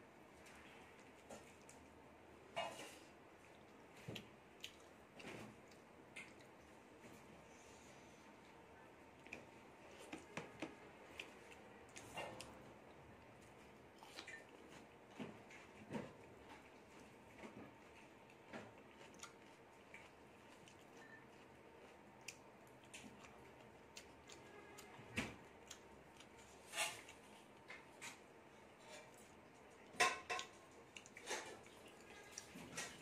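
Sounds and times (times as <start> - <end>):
fingers mixing food on a plate: 9.2 - 12.6.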